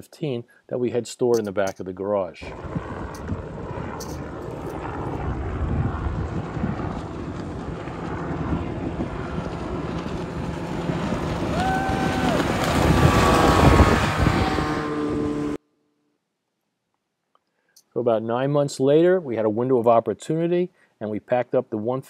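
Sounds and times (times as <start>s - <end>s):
wind on microphone: 2.4s - 15.6s
speedboat outboard engine: 2.5s - 15.6s.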